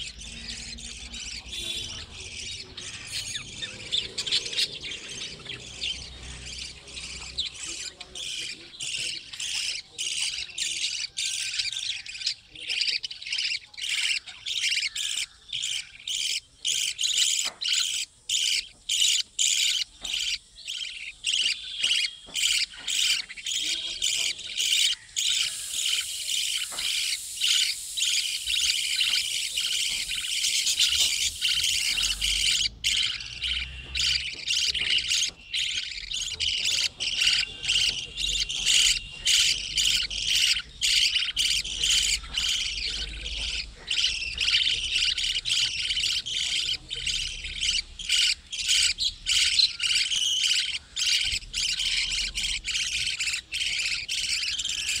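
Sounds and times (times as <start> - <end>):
budgerigars chattering: 0.0 - 55.0.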